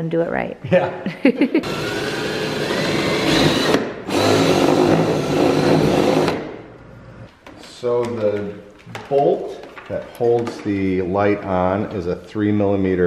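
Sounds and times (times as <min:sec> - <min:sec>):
power drill motor whine: 0:01.6 - 0:06.4.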